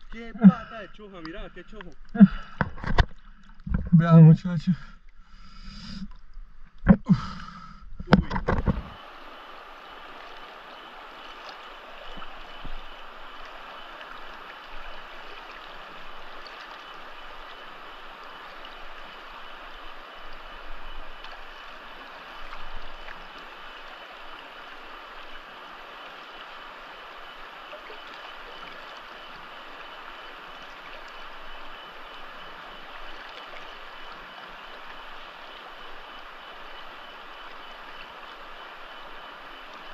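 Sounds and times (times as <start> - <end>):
person speaking: 0.0 - 2.4, 3.8 - 4.9
river water rushing: 8.4 - 39.9.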